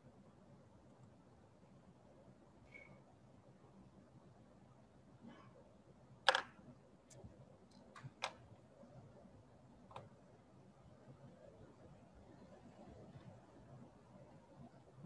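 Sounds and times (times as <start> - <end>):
computer mouse clicks: 6.3 - 6.5, 9.9 - 10.1.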